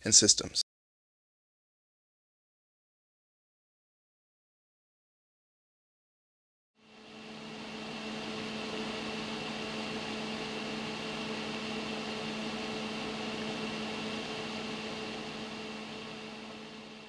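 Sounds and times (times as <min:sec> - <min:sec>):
projector cooling fans whooshing: 0:06.8 - 0:17.0.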